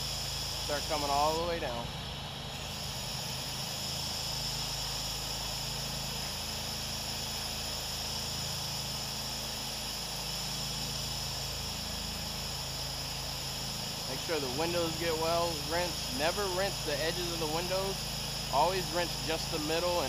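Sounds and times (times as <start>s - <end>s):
pressure washer drone: 0.0s - 20.0s.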